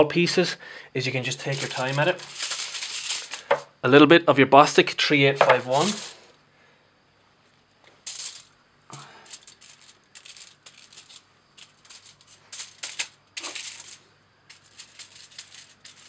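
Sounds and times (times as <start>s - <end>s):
aluminium foil crinkling: 1.3s - 3.7s, 5.3s - 6.3s, 8.1s - 16.0s.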